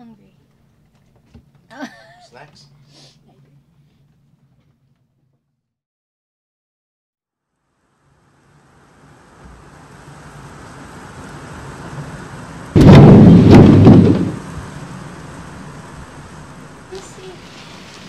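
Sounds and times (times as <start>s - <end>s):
rush of wind from a squall: 8.8s - 18.0s
loud bang with sharp cracks: 12.7s - 16.1s.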